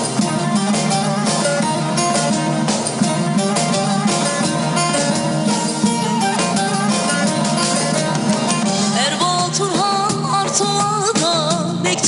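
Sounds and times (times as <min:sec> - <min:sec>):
folk band playing: 0:00.0 - 0:12.0
woman singing: 0:08.8 - 0:12.0.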